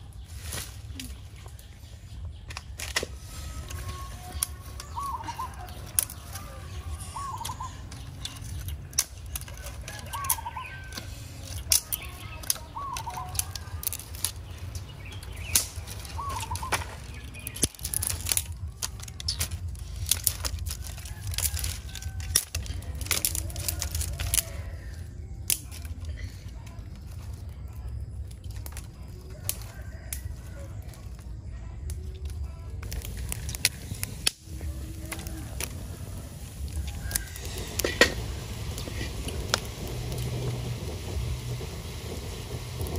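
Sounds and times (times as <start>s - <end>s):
twigs and leaves crackling: 0.0s - 42.9s
bird calling: 3.0s - 20.0s, 33.2s - 42.9s.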